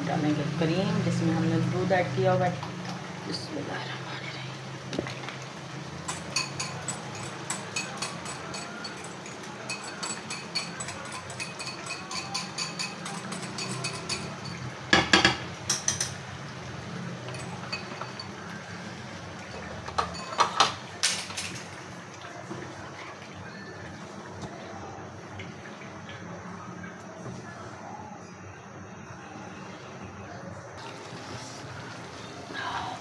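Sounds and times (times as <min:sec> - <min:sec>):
utensils clinking on metal: 0:06.0 - 0:16.3, 0:17.2 - 0:18.7, 0:19.4 - 0:22.0.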